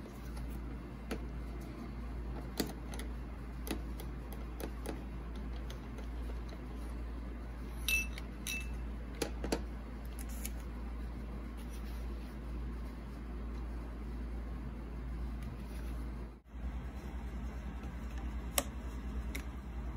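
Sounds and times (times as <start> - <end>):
steady low hum: 0.0 - 19.9.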